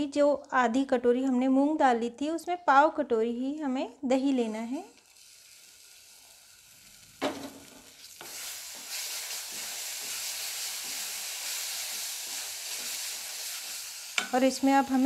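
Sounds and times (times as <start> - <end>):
masala sizzling in a pan: 4.0 - 15.0
spatula stirring: 8.0 - 15.0.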